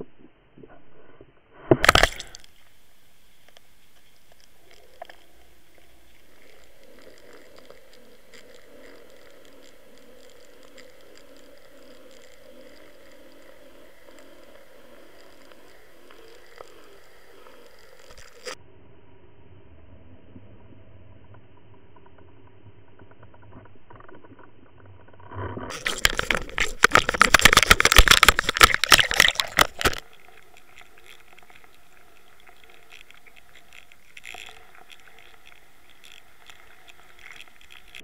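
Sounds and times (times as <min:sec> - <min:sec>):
faint ticks: 0:01.8 - 0:18.6, 0:21.1 - 0:38.0
underwater churning burst: 0:25.7 - 0:30.0.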